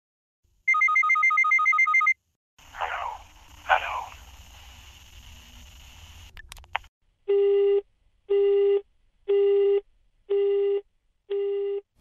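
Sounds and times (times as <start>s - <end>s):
telephone busy tone beeps: 0.7s - 2.2s, 7.3s - 11.8s.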